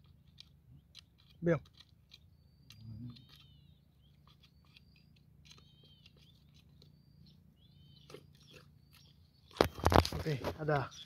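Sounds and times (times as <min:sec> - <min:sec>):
faint high chirps: 0:02.1 - 0:09.7.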